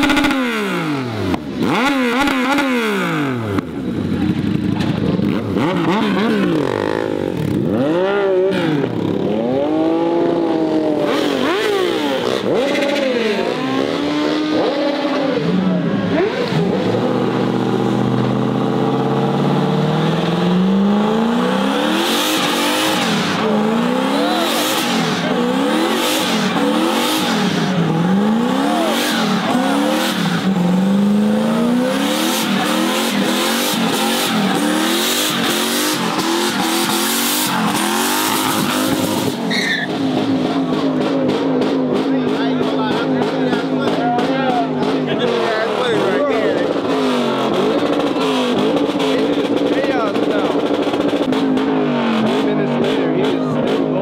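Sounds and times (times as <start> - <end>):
car engine revving hard: 0.0 - 54.0
tyre squeal: 36.5 - 40.3.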